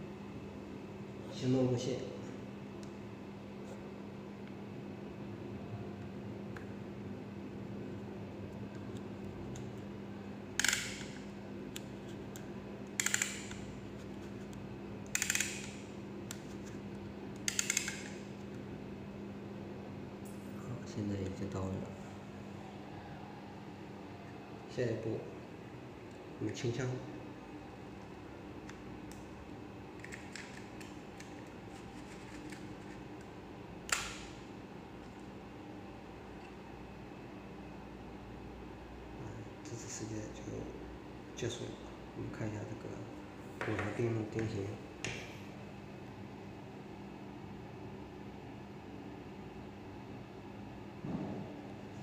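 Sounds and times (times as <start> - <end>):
stapler mechanical clicks: 12.9 - 13.6, 15.1 - 15.8.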